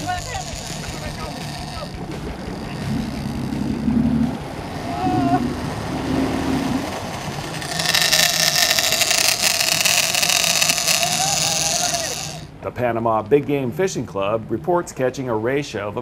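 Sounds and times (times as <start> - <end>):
boat engine hum: 0.0 - 12.6.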